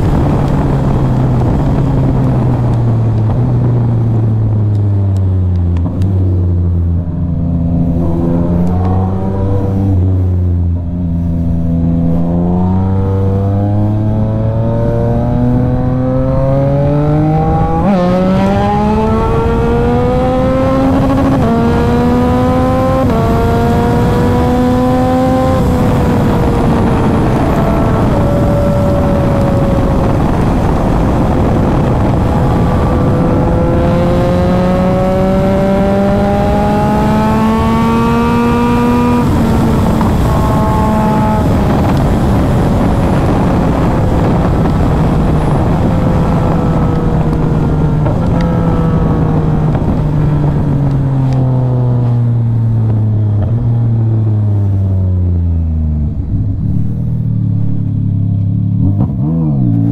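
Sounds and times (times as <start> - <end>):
motorcycle engine running hard: 0.0 - 59.9
wind rush: 0.0 - 59.9.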